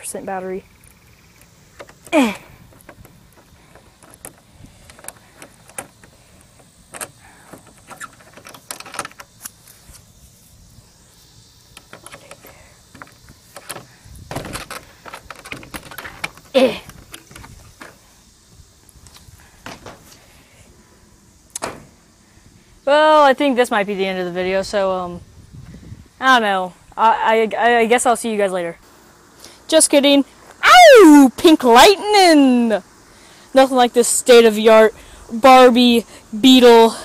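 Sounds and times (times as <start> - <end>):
short falling cry: 30.6 - 31.3.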